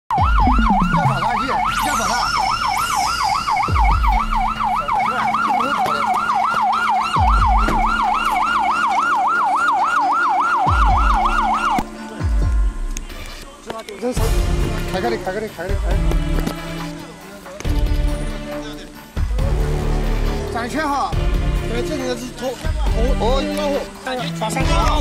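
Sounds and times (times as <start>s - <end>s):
emergency siren yelping: 0.1s - 11.9s.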